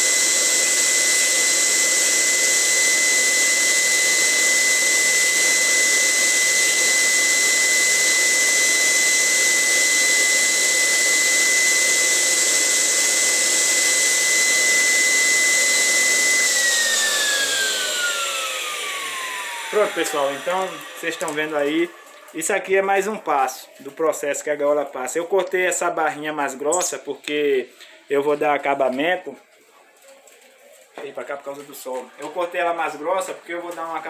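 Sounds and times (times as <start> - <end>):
electric drill whining: 0.0 - 23.2.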